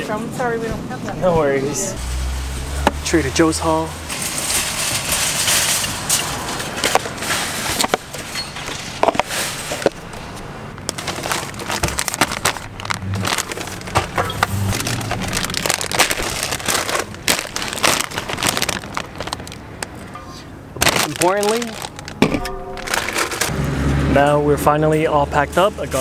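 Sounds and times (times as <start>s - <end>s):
plastic packaging crinkling: 10.8s - 20.1s, 20.8s - 23.5s.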